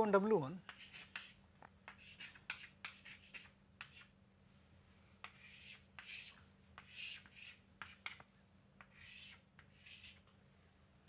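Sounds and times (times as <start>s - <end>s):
chalk scratching on chalkboard: 0.6s - 4.2s, 5.2s - 10.3s
chalk tapping on board: 0.6s - 4.2s, 5.2s - 10.3s.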